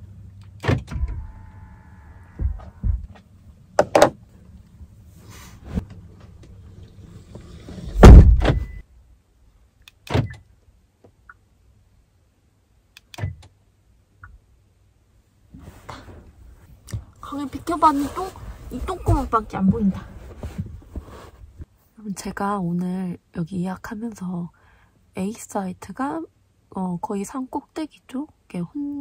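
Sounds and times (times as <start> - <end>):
tailgate heavy thunk: 7.9 - 8.7.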